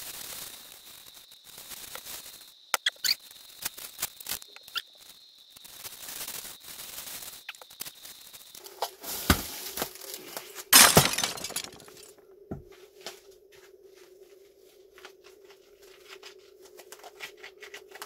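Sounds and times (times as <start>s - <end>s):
glass crashing: 10.7s - 12.1s.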